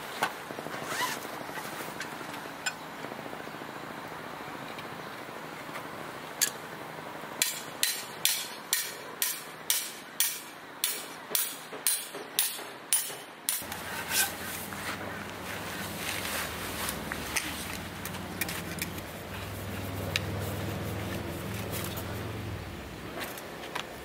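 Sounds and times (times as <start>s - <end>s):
hammer striking metal peg: 7.4s - 13.7s.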